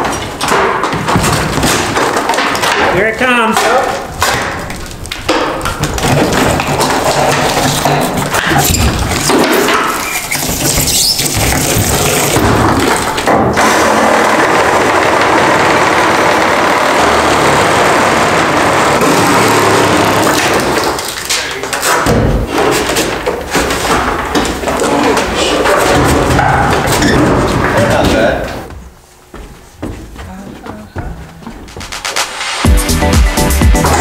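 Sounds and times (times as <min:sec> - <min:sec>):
knocks and scrapes: 0:00.0 - 0:14.8, 0:18.2 - 0:32.3
reciprocating saw cutting: 0:13.6 - 0:20.8.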